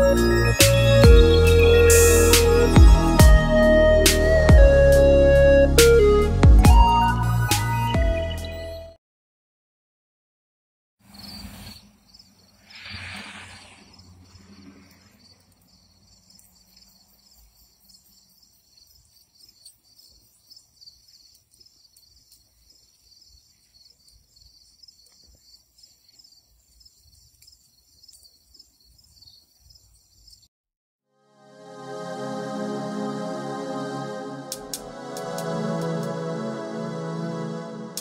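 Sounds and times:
brief rushes of noise: 11.1 - 12.0, 12.6 - 15.2
crickets chirping: 11.1 - 30.5.

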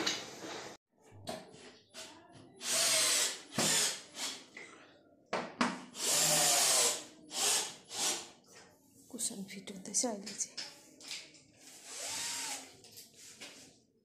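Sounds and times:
power drill driving screws: 2.6 - 4.4, 6.0 - 8.2, 11.8 - 12.7.

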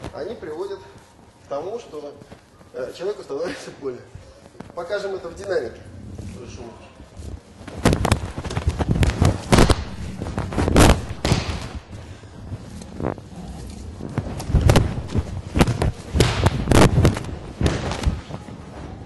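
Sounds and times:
bodies thudding on padded mat: 14.2 - 18.5.

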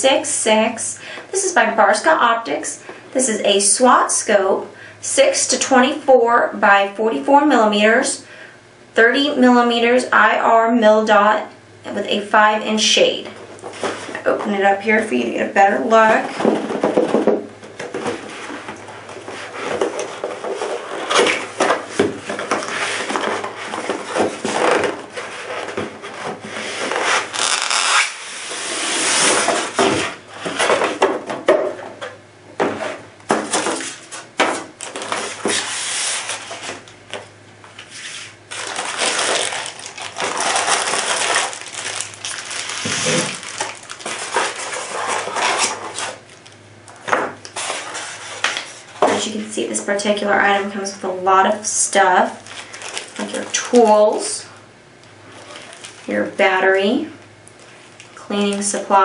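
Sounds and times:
styrofoam rubbing and pulling apart: 26.5 - 29.7
plastic-bagged parts set down: 38.5 - 45.4.

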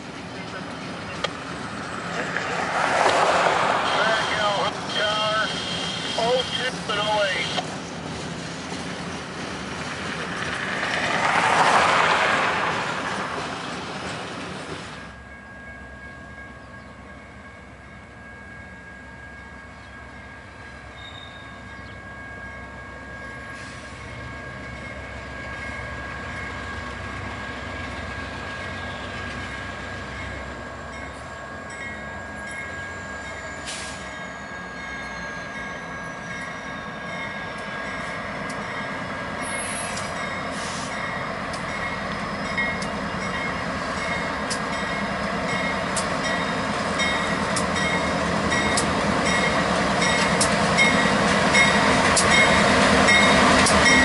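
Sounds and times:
diesel locomotive engine rumble: 0.0 - 54.0
freight cars rolling past: 0.0 - 54.0
high wheel squeal: 3.7 - 6.5, 30.8 - 37.5, 39.4 - 41.2.

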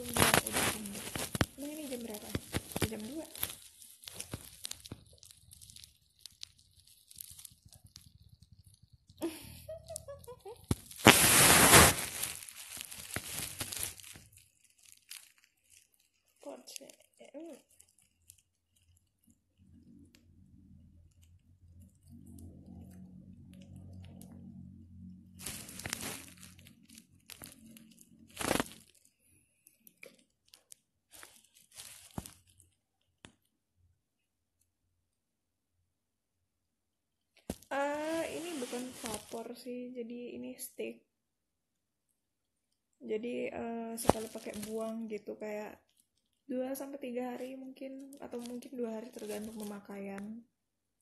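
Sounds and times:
packaging crinkling and rustling: 0.0 - 20.1, 21.2 - 33.4, 37.4 - 39.5, 44.0 - 45.1, 45.8 - 46.5, 47.4 - 50.0.

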